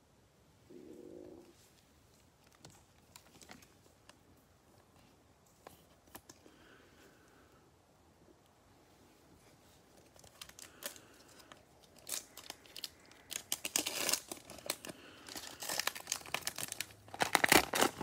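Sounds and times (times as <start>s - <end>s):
foil wrapper crinkling and tearing: 10.1s - 18.0s.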